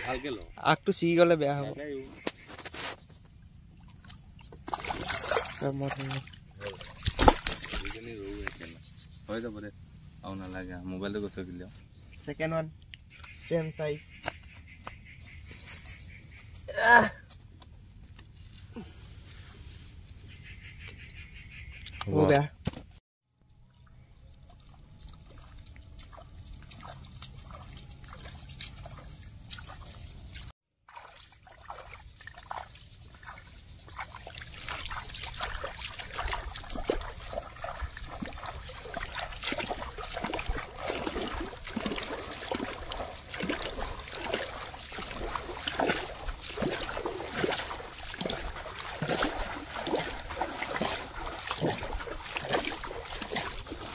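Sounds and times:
bare feet splashing in water: 3.6s - 8.8s, 23.9s - 53.9s.

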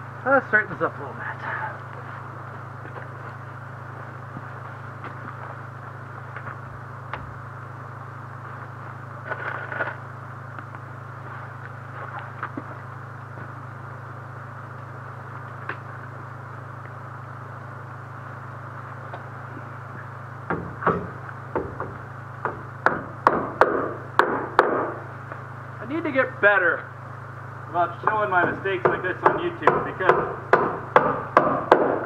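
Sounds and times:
steady low hum: 0.0s - 32.0s
hammer blows on timber: 28.0s - 32.0s.

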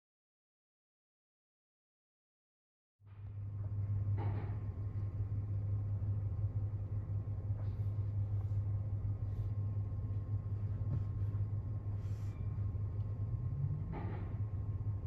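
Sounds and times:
low hum inside car: 3.1s - 15.0s.

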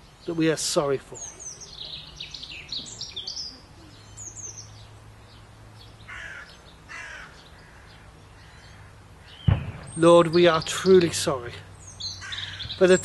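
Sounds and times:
small birds chirping: 0.0s - 13.0s
crow cawing: 6.1s - 9.5s, 12.1s - 12.8s.

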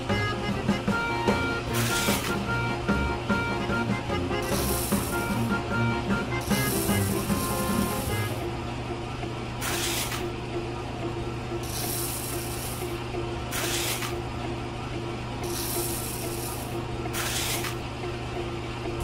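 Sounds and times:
motor driving shaking sieve: 0.8s - 10.4s, 11.6s - 14.4s, 15.3s - 18.6s
sand hissing through mesh: 1.8s - 2.3s, 4.4s - 5.5s, 6.4s - 8.4s, 11.6s - 12.9s, 15.4s - 17.8s.

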